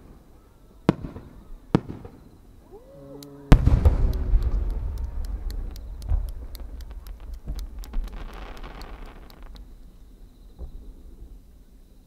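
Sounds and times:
deep firework boom with rumble: 3.5s - 9.8s
firework shells bursting: 3.5s - 10.9s.

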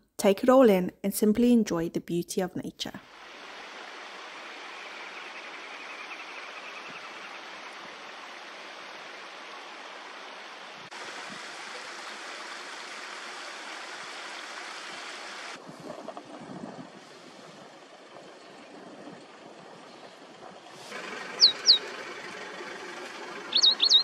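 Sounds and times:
river water rushing over concrete: 3.1s - 5.8s, 6.9s - 15.6s.

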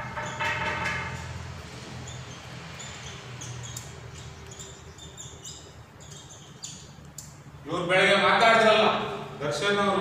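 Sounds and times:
marker squeaking on whiteboard: 0.0s - 7.0s.

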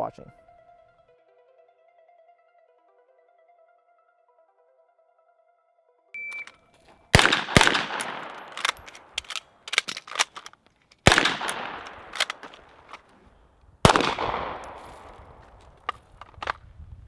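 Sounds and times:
faint sharp cracks: 6.4s - 16.7s
rifle shots with echo: 7.1s - 10.4s, 11.0s - 13.0s, 13.8s - 15.6s.

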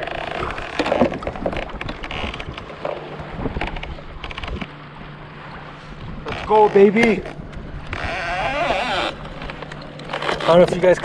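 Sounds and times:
wind buffeting microphone: 0.4s - 4.8s.

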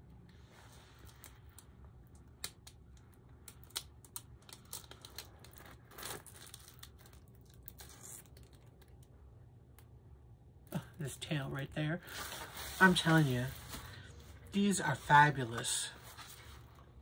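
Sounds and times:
plastic film crinkling: 0.8s - 9.1s, 12.0s - 17.0s.

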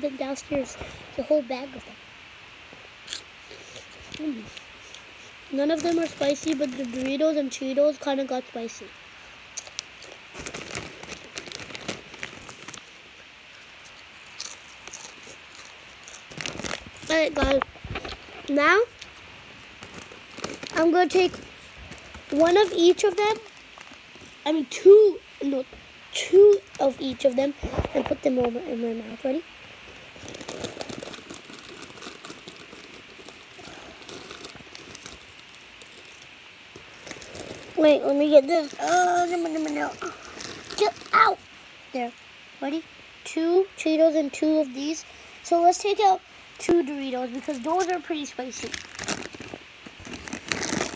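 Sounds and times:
crunchy snack being chewed: 3.0s - 5.1s, 9.6s - 12.8s, 13.6s - 18.3s, 30.2s - 37.8s, 48.6s - 50.9s.

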